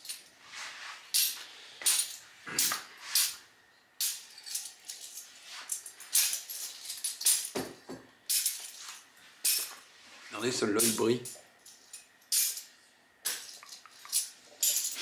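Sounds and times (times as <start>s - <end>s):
metal caps clinking: 1.1s - 3.4s, 4.0s - 7.6s, 8.3s - 9.8s, 10.6s - 15.0s.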